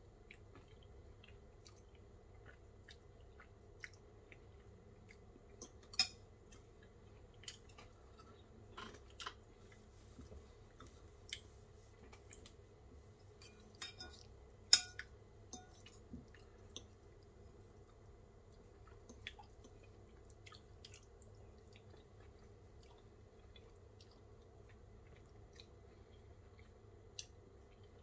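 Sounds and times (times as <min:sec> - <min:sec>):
fork clinking ceramic bowl: 0:13.4 - 0:15.9.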